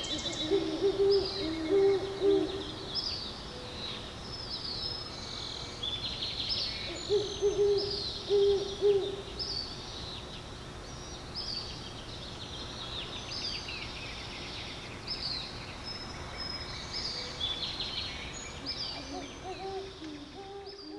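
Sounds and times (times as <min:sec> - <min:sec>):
owl hooting: 0:00.0 - 0:02.9, 0:06.9 - 0:09.4, 0:18.7 - 0:20.9
small birds chirping: 0:00.0 - 0:20.9.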